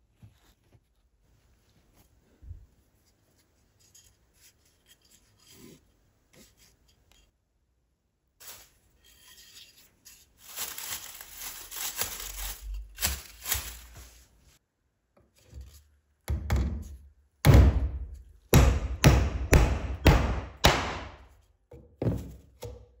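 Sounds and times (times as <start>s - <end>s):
rustling handling noise: 0.0s - 7.5s, 8.4s - 14.6s
hammer tapping nail: 18.5s - 21.1s.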